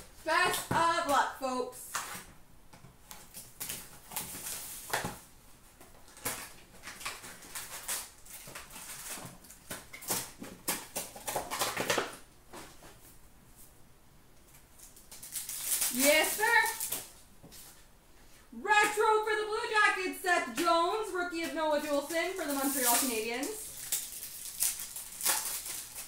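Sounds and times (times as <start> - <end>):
wrappers crinkling and ripping: 3.1 - 5.2, 6.0 - 12.2, 14.5 - 17.8, 21.2 - 26.0.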